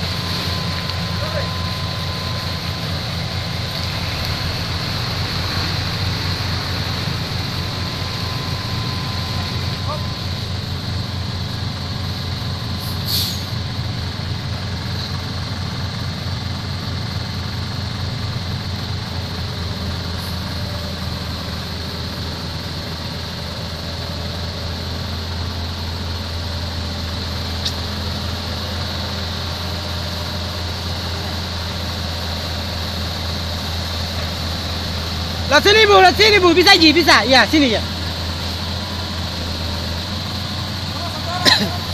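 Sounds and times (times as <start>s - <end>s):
diesel truck engine idling: 0.0s - 41.9s
brief hiss: 12.8s - 13.5s.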